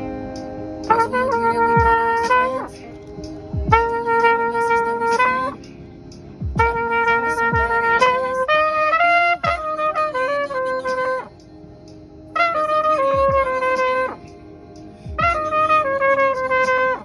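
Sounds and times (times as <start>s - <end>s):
trumpet long held notes: 0.9s - 2.7s, 3.7s - 5.6s, 6.6s - 11.3s, 12.4s - 14.2s, 15.2s - 17.0s.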